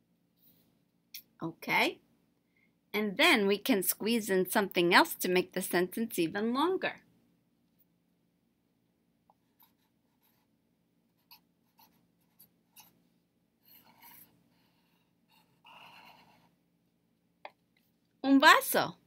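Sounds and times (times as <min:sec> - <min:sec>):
pen scratching on paper: 0:09.4 - 0:10.5, 0:11.1 - 0:13.0, 0:13.6 - 0:16.6.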